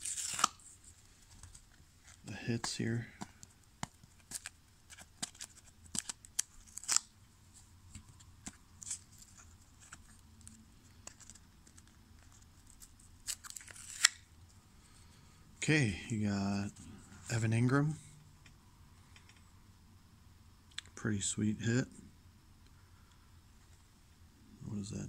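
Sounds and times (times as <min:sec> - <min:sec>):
tape tearing: 0:00.0 - 0:00.7, 0:04.1 - 0:07.1, 0:13.2 - 0:14.3.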